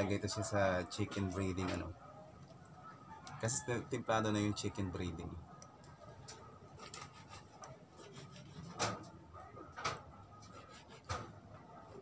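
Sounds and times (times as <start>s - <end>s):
knife scraping fish: 6.7s - 9.0s, 10.4s - 11.3s.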